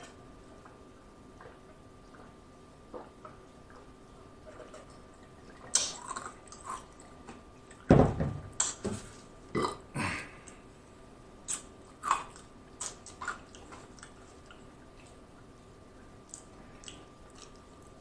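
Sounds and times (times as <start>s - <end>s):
loud deep burp: 9.5s - 10.3s.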